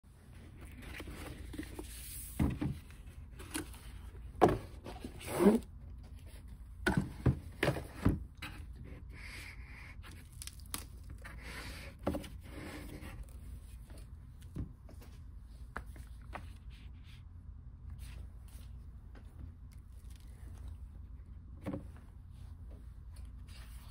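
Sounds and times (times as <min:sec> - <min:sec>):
cardboard scraping and rubbing: 0:04.5 - 0:05.7.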